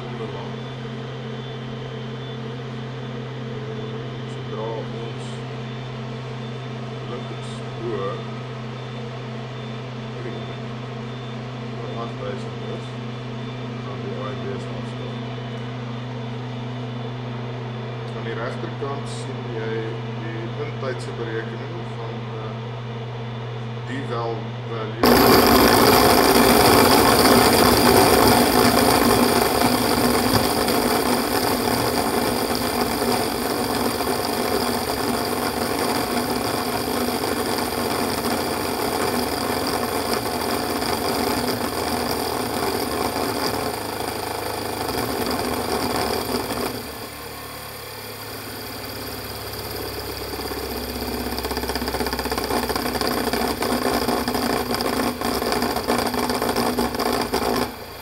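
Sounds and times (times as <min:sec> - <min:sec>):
low hum: 0:21.6 - 0:58.0
rotor bearing rattling: 0:25.0 - 0:47.2, 0:48.1 - 0:58.0.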